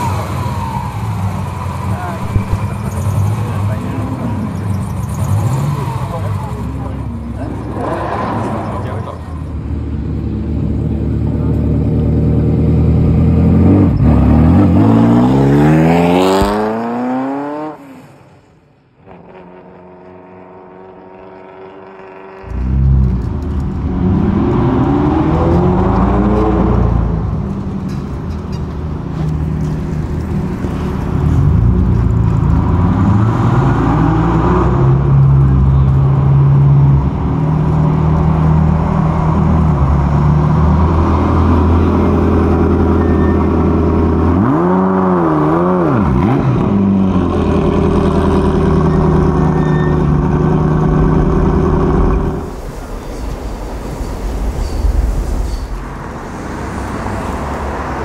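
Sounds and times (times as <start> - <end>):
car engine revving and accelerating: 0.0 - 9.3, 10.0 - 18.2, 19.0 - 27.7, 29.2 - 52.6.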